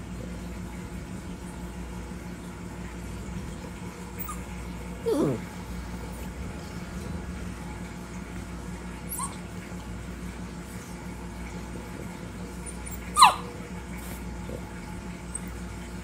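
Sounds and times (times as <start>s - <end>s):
steady low hum: 0.0s - 16.0s
dog yelping: 4.1s - 5.5s, 9.0s - 9.6s, 12.6s - 13.6s.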